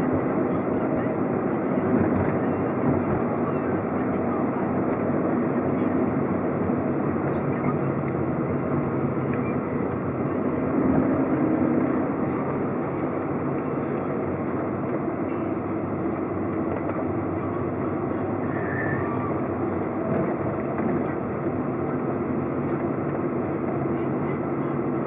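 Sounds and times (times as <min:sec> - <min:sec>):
car engine and tyre noise: 0:00.0 - 0:25.0.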